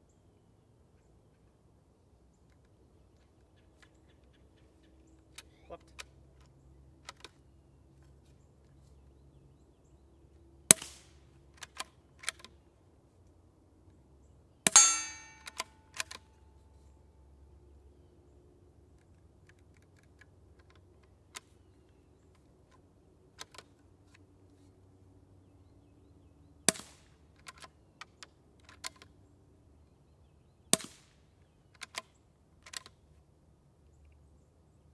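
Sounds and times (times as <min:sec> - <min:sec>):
rifle bolt clicks: 0:11.6 - 0:12.6, 0:14.7 - 0:16.4, 0:31.7 - 0:33.0
metallic ring: 0:14.7 - 0:15.9.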